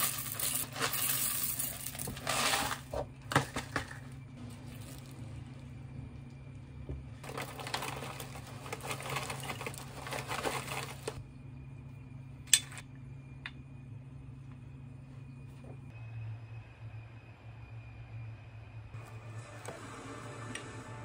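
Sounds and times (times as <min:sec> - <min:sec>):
faint steady hum: 0:00.0 - 0:21.0
bag crinkling: 0:07.2 - 0:11.2.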